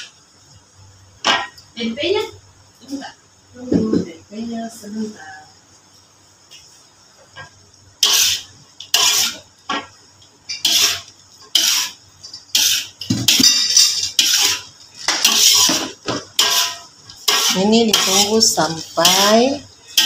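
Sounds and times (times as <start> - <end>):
metal spatula scraping a wok: 8.0 - 9.5, 10.5 - 20.0.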